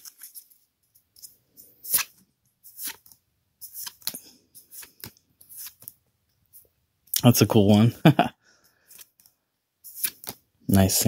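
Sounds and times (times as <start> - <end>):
cards swishing and snapping: 0.0 - 6.6, 8.8 - 10.9.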